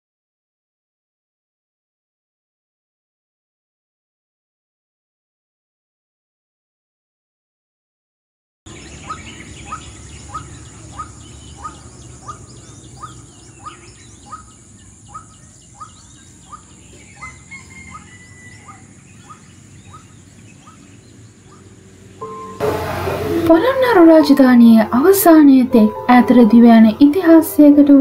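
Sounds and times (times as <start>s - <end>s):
faint birds chirping: 8.7s - 28.0s.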